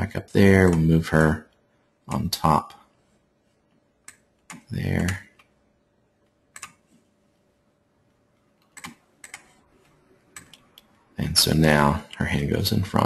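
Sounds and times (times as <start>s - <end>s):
mouse and keyboard clicks: 6.6s - 7.0s, 8.6s - 9.6s, 10.3s - 10.9s.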